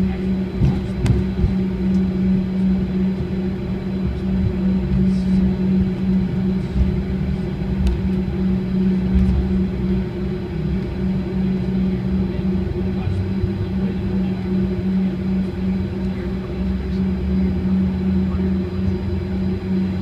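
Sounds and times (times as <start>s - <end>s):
jet engine drone: 0.0s - 20.0s.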